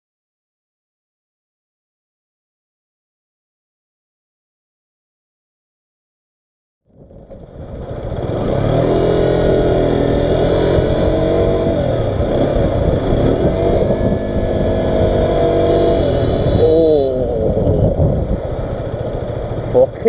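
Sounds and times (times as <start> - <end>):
motorcycle engine running: 6.9 - 20.0
bus horn blasts: 15.8 - 17.3.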